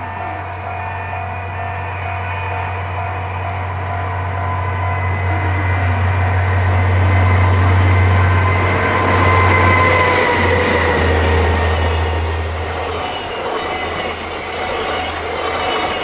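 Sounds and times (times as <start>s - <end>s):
locomotive engine drone: 0.0s - 16.0s
whining tones: 0.0s - 16.0s.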